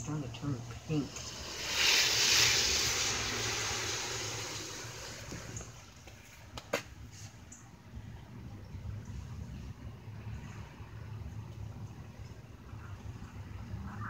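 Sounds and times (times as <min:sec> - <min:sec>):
vehicle tyres hissing on wet road: 0:00.4 - 0:07.4.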